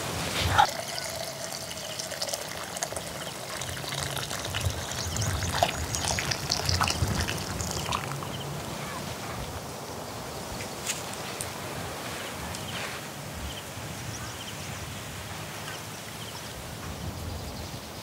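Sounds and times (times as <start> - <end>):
water pouring into pot: 0.6 - 8.4.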